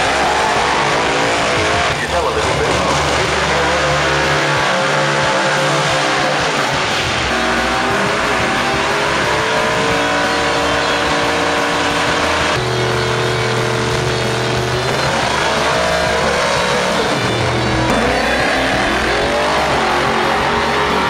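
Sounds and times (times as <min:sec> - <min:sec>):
car engines revving high: 0:00.0 - 0:21.0.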